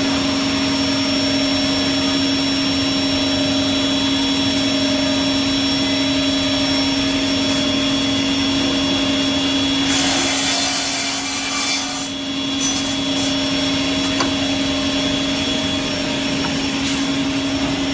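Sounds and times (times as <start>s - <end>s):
saw motors humming: 0.0s - 17.9s
saw blade cutting wood: 9.8s - 14.3s.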